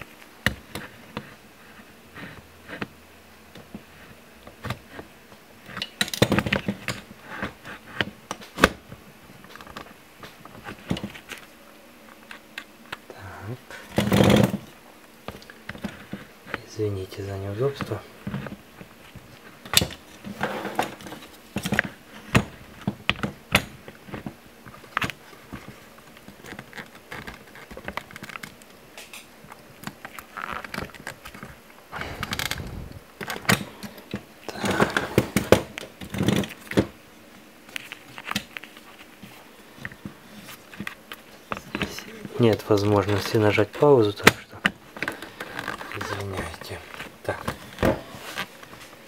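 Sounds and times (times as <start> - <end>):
scraping or rustling: 17.6 - 21.9.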